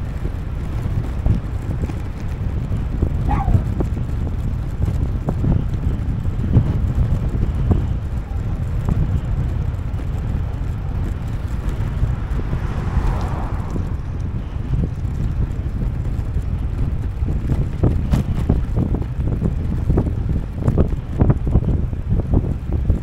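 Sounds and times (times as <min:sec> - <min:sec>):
wind buffeting microphone: 0:00.0 - 0:23.0
vehicle passing by: 0:07.6 - 0:17.2.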